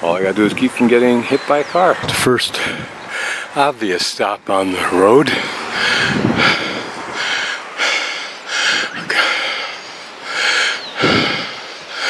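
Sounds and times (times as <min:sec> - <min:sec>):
person breathing: 0:02.6 - 0:03.6, 0:05.3 - 0:12.0.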